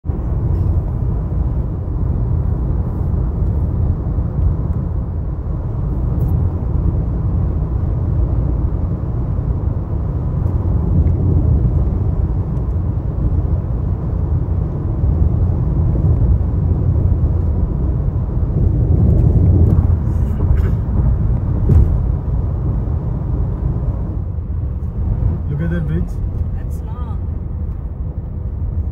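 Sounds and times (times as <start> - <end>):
car cabin road and engine rumble: 0.0 - 28.9.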